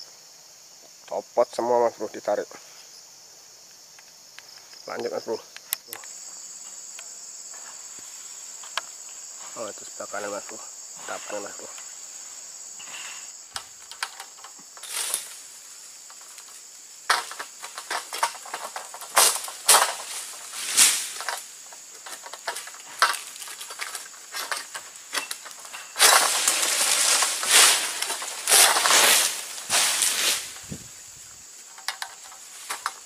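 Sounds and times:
insect buzzing: 0.0s - 33.0s
frond rustling and crackling: 11.0s - 33.0s
sickle hacking palm stalks: 13.9s - 30.8s.

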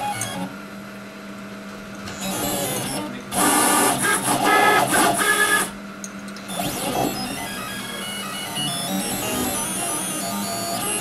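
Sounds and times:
stepper motors whining: 2.1s - 5.8s, 6.5s - 11.0s.

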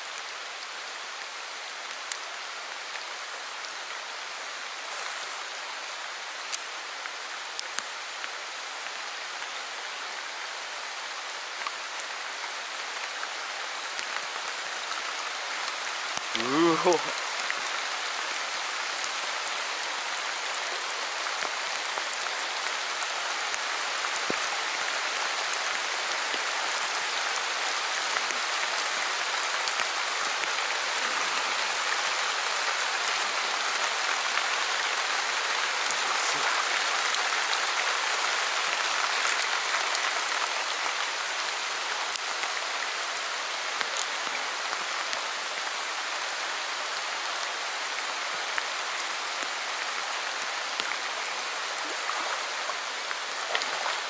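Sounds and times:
heavy rain on stream: 0.0s - 54.0s
raindrops ticking: 15.6s - 22.8s.

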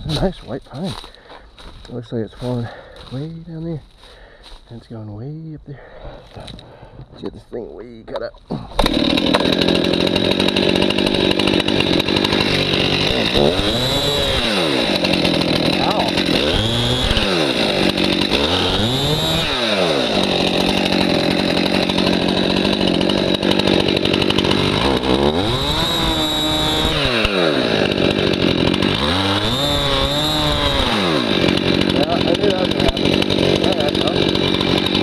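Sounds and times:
chainsaw cutting wood: 8.1s - 35.0s.

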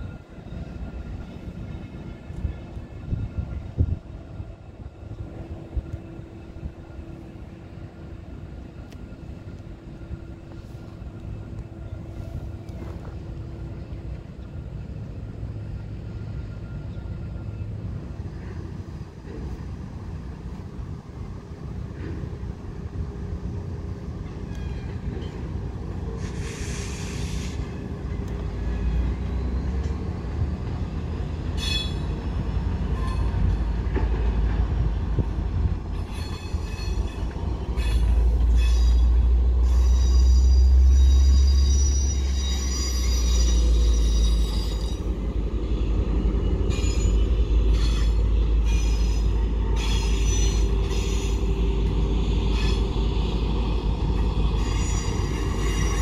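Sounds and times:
train rolling past rumble: 0.0s - 56.0s
steel wheels squealing: 24.2s - 30.6s, 31.2s - 34.3s, 35.9s - 56.0s.

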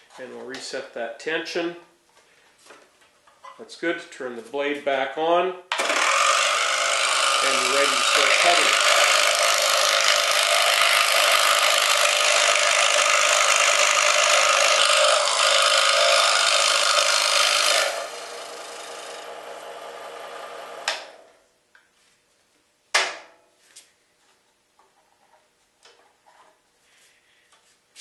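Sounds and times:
scroll saw cutting wood: 5.7s - 21.2s
saw running quietly: 5.8s - 21.2s.

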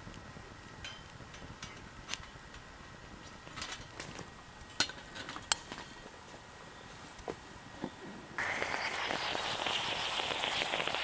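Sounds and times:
metal stove parts clinking: 4.7s - 6.0s.

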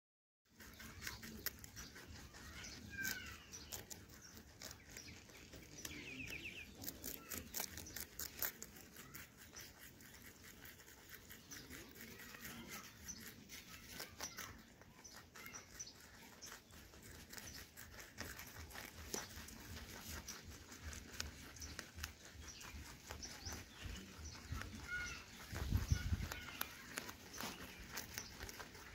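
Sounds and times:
rabbits chewing crunchy greens: 0.4s - 28.9s
leaf rustles: 17.3s - 28.9s.

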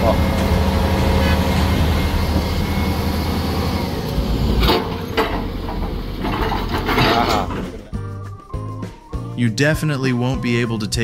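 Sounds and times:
heavy machine engine running: 0.0s - 8.0s
sharp metallic knocks: 4.6s - 7.8s.

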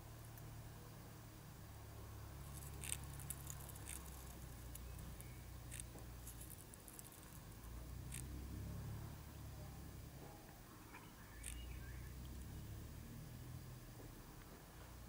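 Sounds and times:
low steady hum: 0.0s - 15.0s
hornet scratching paper nest: 2.4s - 7.5s.

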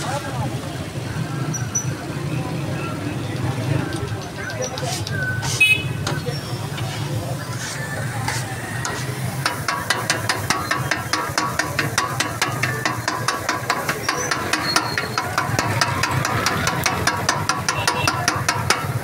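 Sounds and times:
metal spatula clanking on griddle: 8.2s - 19.0s.

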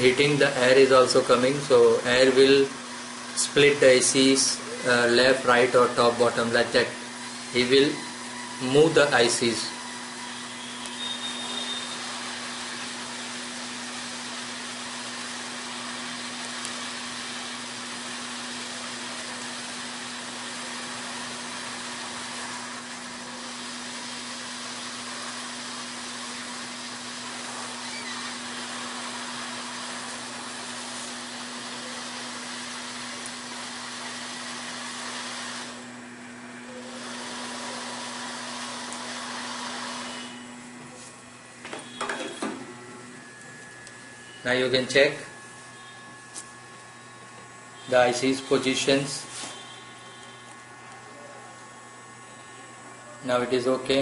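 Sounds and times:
hot air station hissing: 0.0s - 54.0s.

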